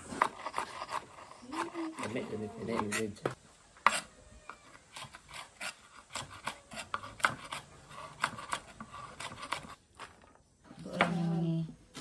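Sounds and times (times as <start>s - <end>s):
knife chopping on wooden board: 5.0s - 9.7s.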